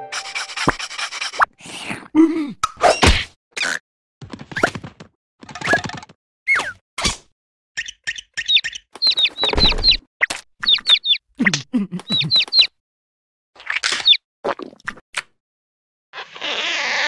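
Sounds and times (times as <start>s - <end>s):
low voiced grunts: 2.1s - 2.6s
cartoon chick peeping: 7.8s - 10.0s, 10.6s - 11.2s, 12.0s - 12.7s.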